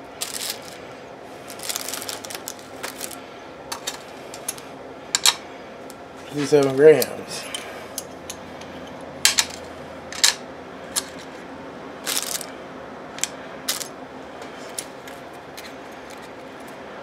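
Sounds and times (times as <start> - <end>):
metal parts clinking: 9.3 - 10.4, 12.1 - 12.5, 13.2 - 13.9.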